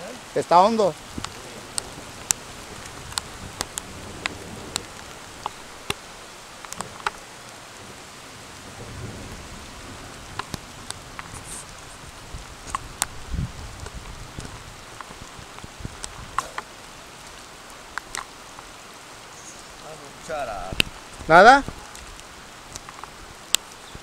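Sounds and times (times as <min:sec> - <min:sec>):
steady rain falling: 0:00.0 - 0:24.0.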